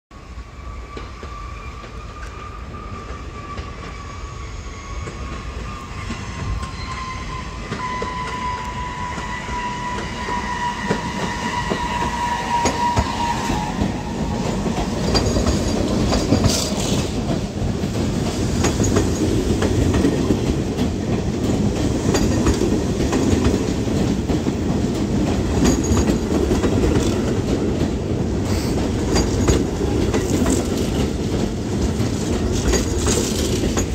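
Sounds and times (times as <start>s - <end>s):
subway train rumbling past: 0.1s - 33.9s
wheels clicking over rail joints: 13.8s - 33.9s.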